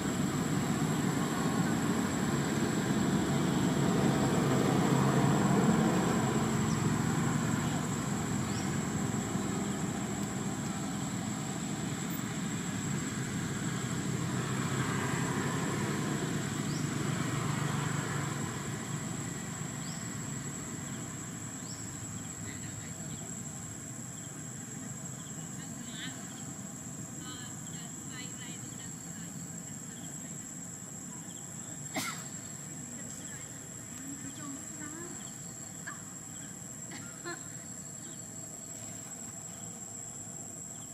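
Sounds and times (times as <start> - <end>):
motor engine droning: 0.0 - 23.3
high insect drone: 0.0 - 40.9.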